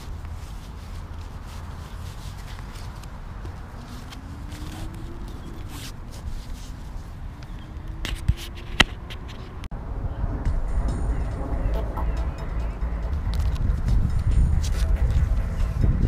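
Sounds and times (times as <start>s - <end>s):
fabric rustling and scraping: 0.0s - 9.7s.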